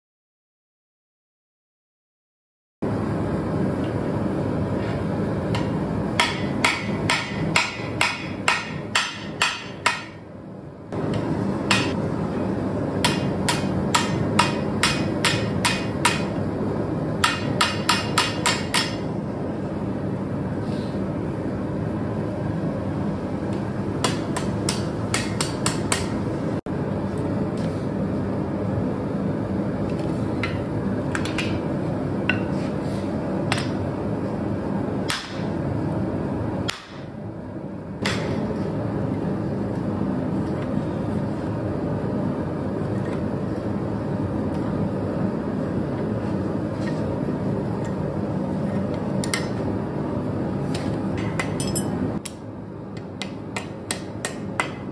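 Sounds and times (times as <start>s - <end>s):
steady background noise: 2.8s - 54.9s
hammer striking steel on anvil: 5.5s - 10.3s, 11.1s - 12.0s, 13.0s - 16.4s, 17.2s - 19.1s, 24.0s - 26.2s, 35.1s - 35.5s, 36.6s - 37.1s, 38.0s - 38.5s, 51.2s - 52.4s, 53.0s - 54.9s.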